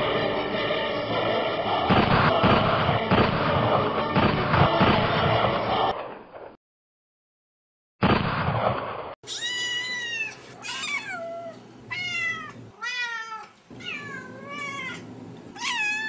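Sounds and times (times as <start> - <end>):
gunfire burst: 1.9 - 5.6, 8.0 - 9.2
cat meowing: 9.3 - 16.0.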